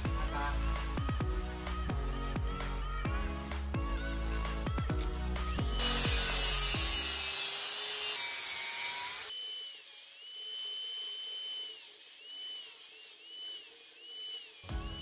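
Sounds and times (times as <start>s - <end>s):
music: 0.0s - 7.4s, 14.6s - 15.0s
power tool motor whine: 5.0s - 15.0s.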